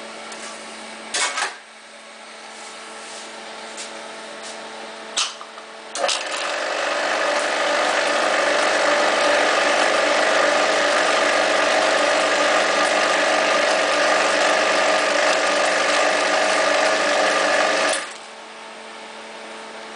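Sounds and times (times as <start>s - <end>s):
whipped cream machine running: 5.9s - 18.5s.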